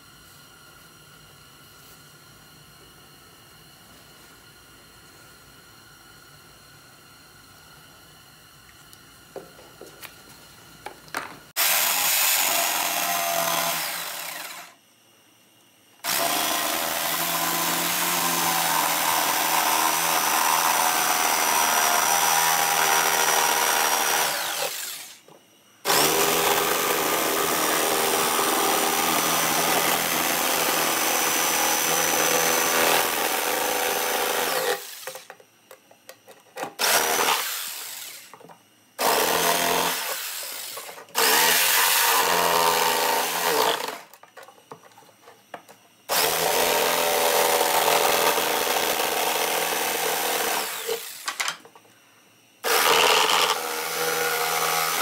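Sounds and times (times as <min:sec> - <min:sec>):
jigsaw cutting plywood: 0:11.6 - 0:14.8, 0:16.0 - 0:25.2, 0:25.8 - 0:35.3, 0:36.6 - 0:38.4, 0:39.0 - 0:44.2, 0:46.1 - 0:51.6, 0:52.6 - 0:55.0.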